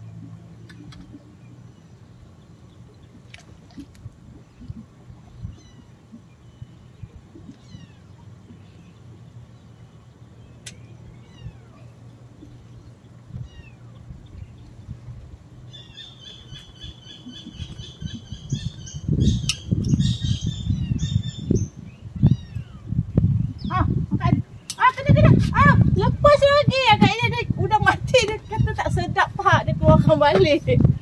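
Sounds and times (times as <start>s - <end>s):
rapid high bird calls: 15.7s - 22.8s
birds whistling: 15.7s - 23.7s.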